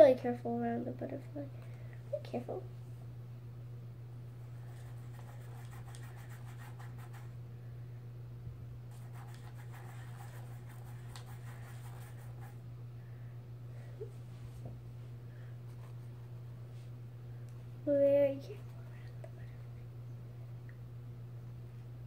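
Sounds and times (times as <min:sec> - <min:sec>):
steady low hum: 0:00.0 - 0:22.0
paintbrush scratching on canvas: 0:04.6 - 0:07.3, 0:08.9 - 0:12.6.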